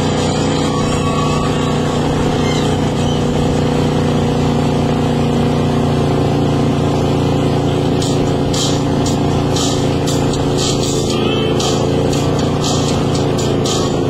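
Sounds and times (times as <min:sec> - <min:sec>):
airboat engine and propeller: 0:00.0 - 0:14.0.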